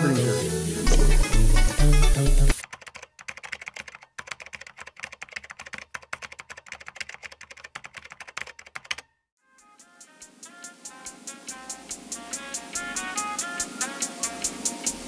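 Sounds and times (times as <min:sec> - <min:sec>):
rapid light clicks and taps: 0:02.6 - 0:09.1.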